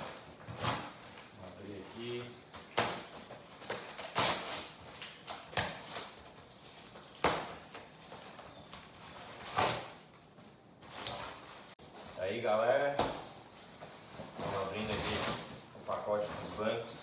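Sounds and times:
packing paper tearing: 0.0s - 10.1s, 14.3s - 16.8s
paper rustling: 0.0s - 17.0s.

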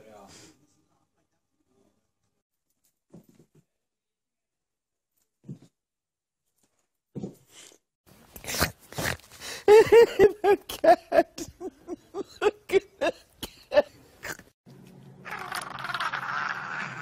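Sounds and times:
man laughing in wheezing bursts: 9.6s - 14.0s.

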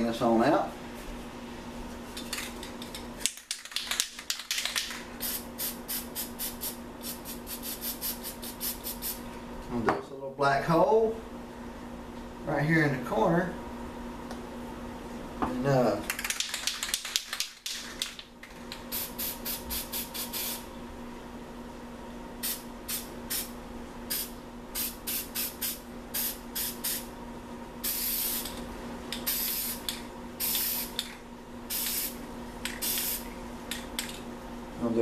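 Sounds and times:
spray paint can hissing: 4.5s - 9.2s, 18.9s - 20.6s, 24.1s - 27.0s, 27.8s - 28.6s, 29.2s - 31.0s, 31.7s - 33.3s.

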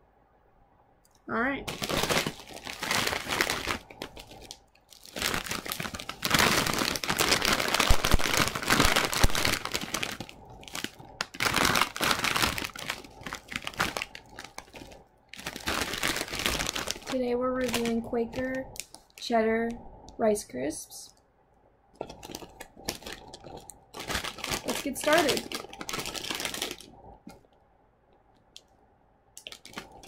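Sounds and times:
plastic snack bag crinkling: 1.6s - 19.3s, 22.0s - 27.5s, 29.4s - 30.0s.

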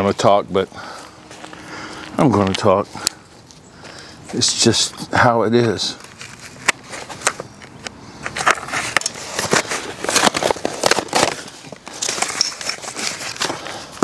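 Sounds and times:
packing material crinkling: 8.4s - 14.0s.

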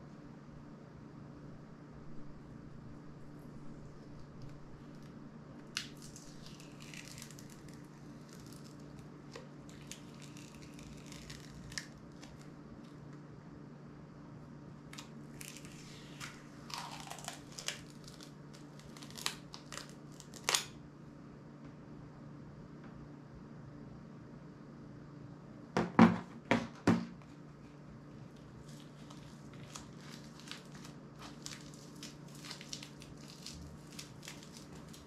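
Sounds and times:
faint steady hum: 0.0s - 35.0s
foil sheet crinkling: 4.0s - 13.0s, 14.9s - 20.8s, 28.3s - 35.0s.

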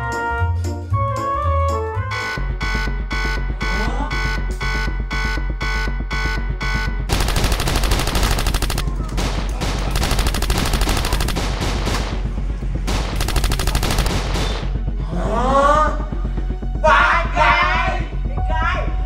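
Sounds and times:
rapid automatic gunfire: 7.1s - 14.8s.

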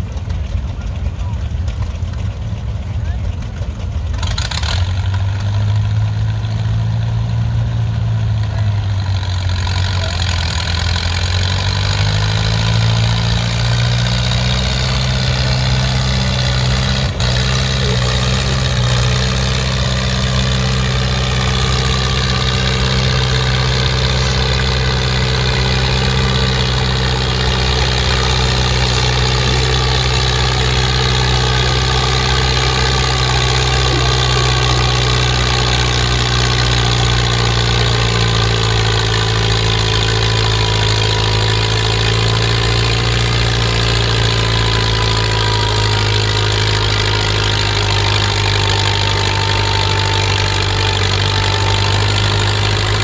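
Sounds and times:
tractor engine under load: 0.0s - 53.0s.

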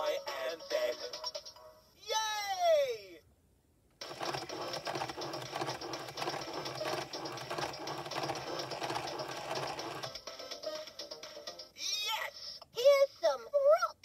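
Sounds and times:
toy rattling whirring sound effect: 4.0s - 10.2s.

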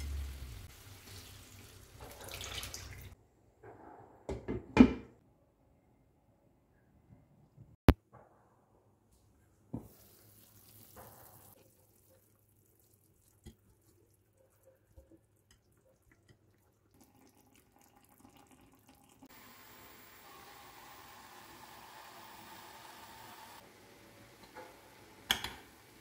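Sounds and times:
food simmering in a frying pan: 0.0s - 2.1s, 9.8s - 14.0s, 16.0s - 26.0s.

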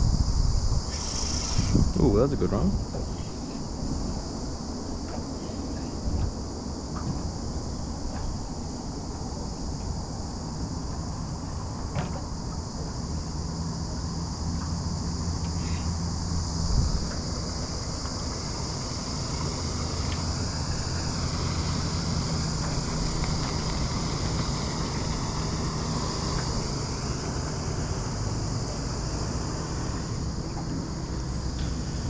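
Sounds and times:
wind buffeting microphone: 0.0s - 12.8s, 16.2s - 29.0s
insect drone: 0.0s - 32.0s
low motor hum: 1.7s - 32.0s.

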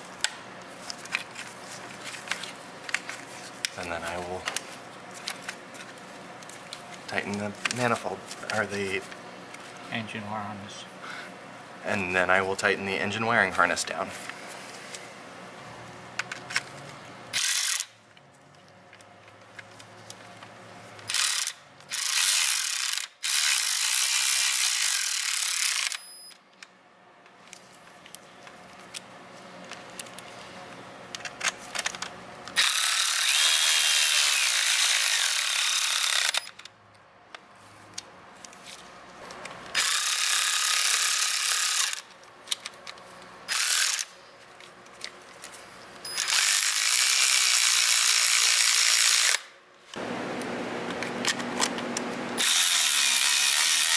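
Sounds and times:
ratchet wrench running bolts: 17.4s - 17.9s, 21.1s - 26.0s, 32.6s - 36.5s, 39.8s - 42.0s, 46.1s - 49.4s, 52.4s - 53.9s.

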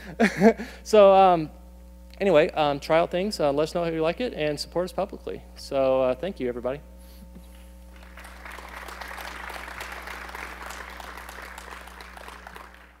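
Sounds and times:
low electrical hum: 0.0s - 13.0s
audience applauding: 7.9s - 13.0s.

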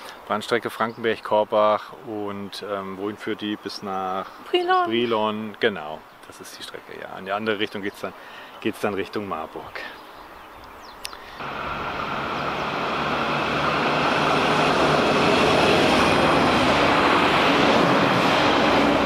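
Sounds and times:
diesel train passing: 11.4s - 19.0s.

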